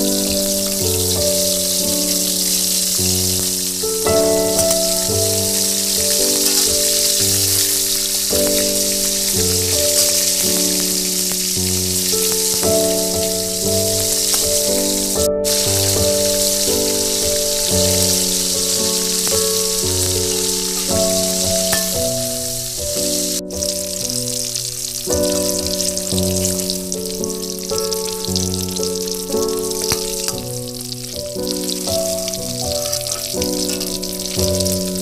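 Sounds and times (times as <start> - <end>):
fish sizzling in hot oil: 0.0 - 35.0
stepping background melody: 1.2 - 24.3.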